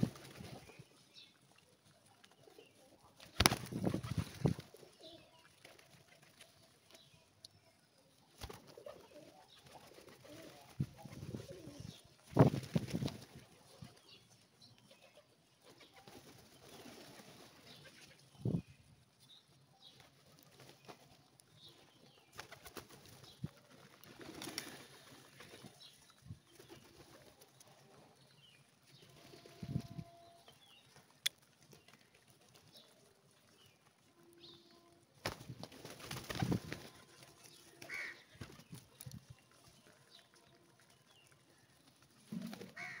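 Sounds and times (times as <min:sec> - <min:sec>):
pigeon wings fluttering: 0:00.0 - 0:00.8, 0:03.2 - 0:04.9, 0:08.4 - 0:13.6, 0:15.7 - 0:18.1, 0:22.3 - 0:25.9, 0:35.2 - 0:39.2
pigeons cooing: 0:08.7 - 0:12.0.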